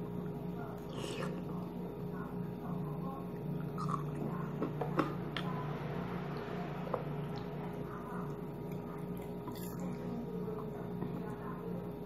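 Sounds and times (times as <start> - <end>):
steady low hum: 0.0 - 12.0
person chewing food: 3.6 - 4.3, 8.6 - 10.1.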